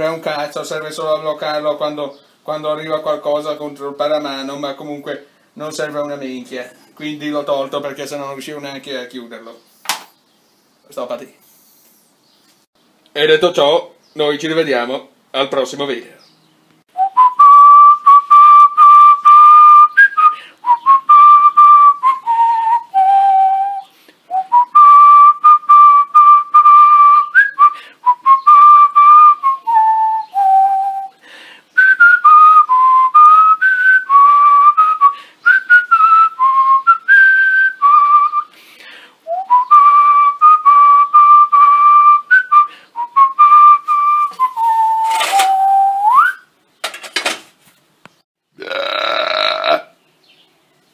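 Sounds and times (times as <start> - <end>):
person whistling a tune: 17.0 - 31.2, 31.8 - 38.6, 39.3 - 46.5.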